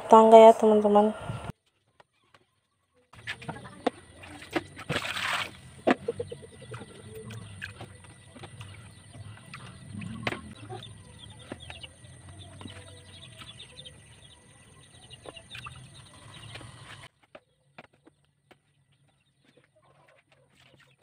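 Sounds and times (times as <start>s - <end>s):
plastic bowls clattering: 3.2s - 13.6s
animal calls: 5.7s - 17.1s.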